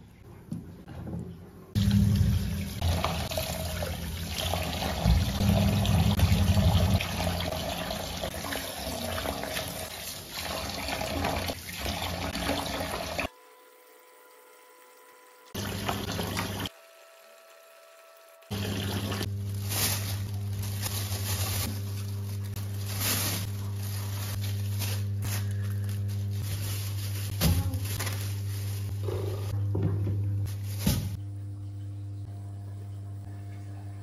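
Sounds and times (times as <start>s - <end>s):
water splashing as fish rinsed: 1.8s - 13.3s, 18.5s - 25.0s.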